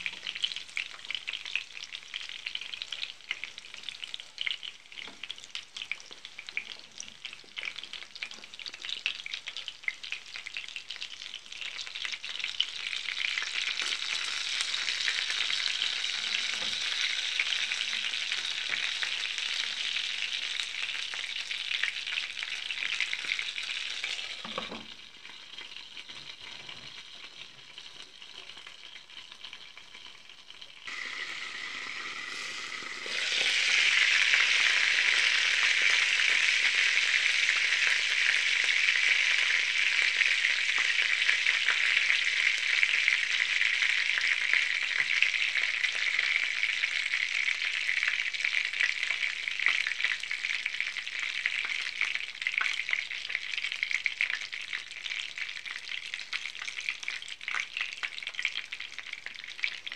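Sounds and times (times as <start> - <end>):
food frying in hot oil: 0.0 - 59.9.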